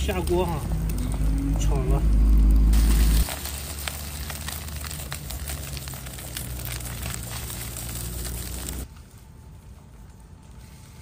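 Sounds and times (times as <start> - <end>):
eggs sizzling in a wok: 2.2 - 8.9.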